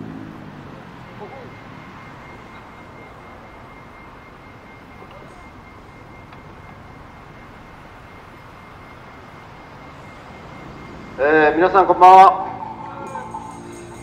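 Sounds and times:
low rumble of traffic: 0.0 - 14.0
faint high steady tone: 0.6 - 14.0.

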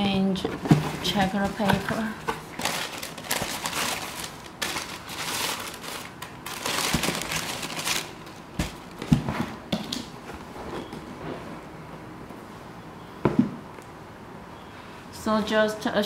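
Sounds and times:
tissue paper rustling: 2.4 - 8.3.

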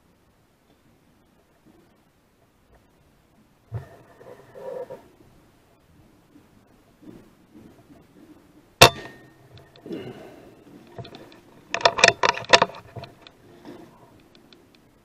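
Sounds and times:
rifle shot: 8.8 - 9.2
sharp metallic clicks and knocks: 10.8 - 13.4.

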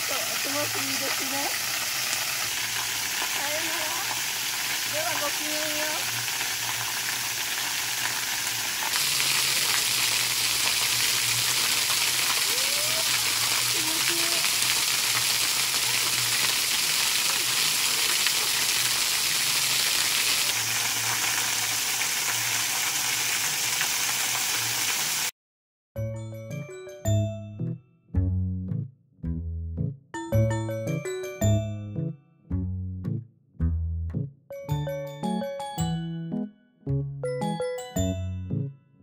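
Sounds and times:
small waterfall rushing: 0.0 - 25.3.

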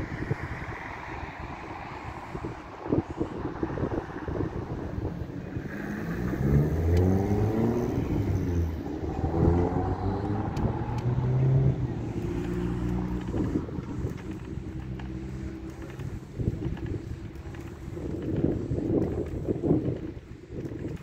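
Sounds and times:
wind on microphone: 0.0 - 21.0
diesel truck engine pulling away: 5.3 - 16.1.

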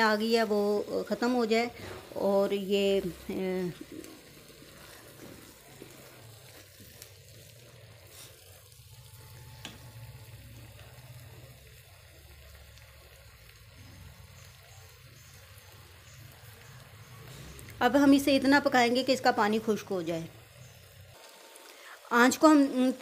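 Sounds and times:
spatula stirring food: 0.0 - 17.8
food sizzling in a pan: 0.0 - 23.0.

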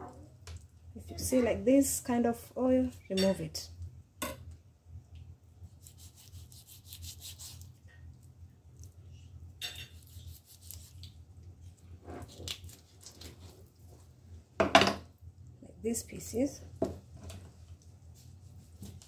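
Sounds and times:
low steady hum: 0.0 - 19.0
knife slicing raw chicken: 5.7 - 7.7, 9.8 - 11.1.

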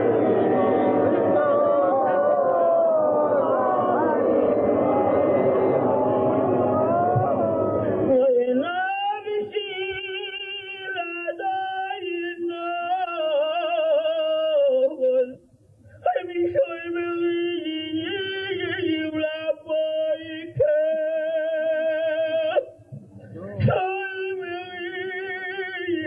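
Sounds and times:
man chanting a prayer: 23.3 - 26.0.

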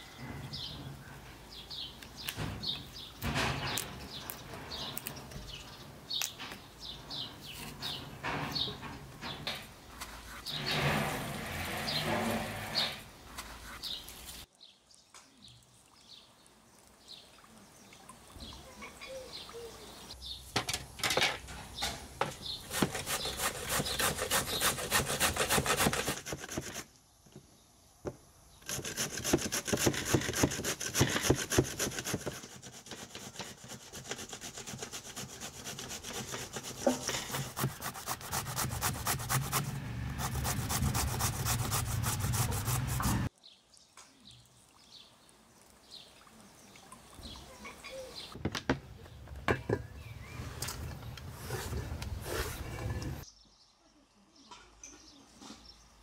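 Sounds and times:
grating vegetable on metal grater: 22.7 - 26.8, 28.7 - 43.3.

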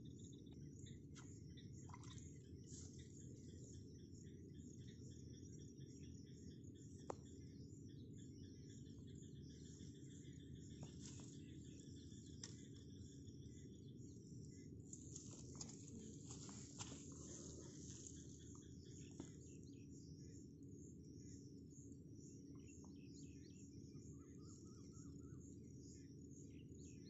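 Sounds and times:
insect trills: 0.0 - 27.0.

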